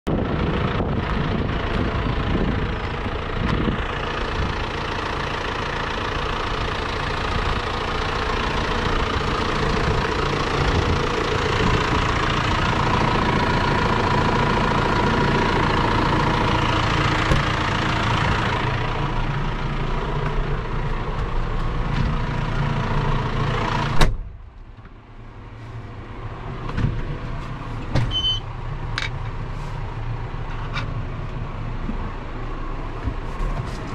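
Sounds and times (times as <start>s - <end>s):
tractor diesel engine idling: 0.1s - 33.9s
cab door shutting: 24.0s - 24.4s, 27.8s - 28.4s.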